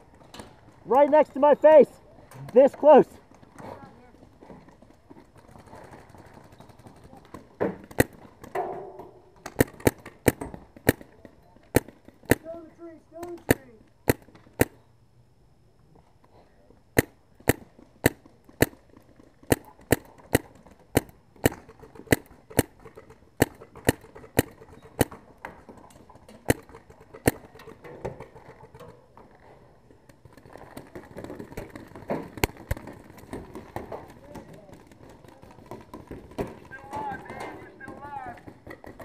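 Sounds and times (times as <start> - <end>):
paintball marker shots: 7.6 - 8.7, 9.4 - 11.1, 11.7 - 12.5, 13.3 - 14.8, 17.0 - 25.2, 26.3 - 27.6.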